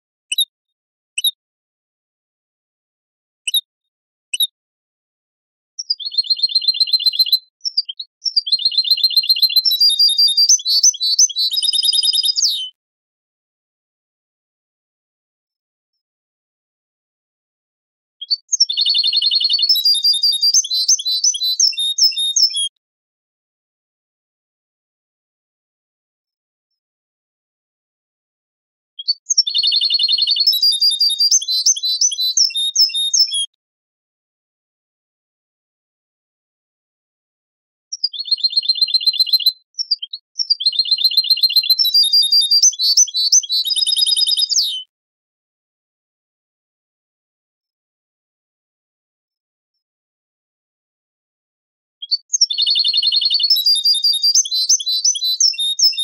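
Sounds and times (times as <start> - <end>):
finch song trilling: 5.8 - 12.7, 18.3 - 22.7, 29.1 - 33.5, 37.9 - 44.9, 52.1 - 56.0.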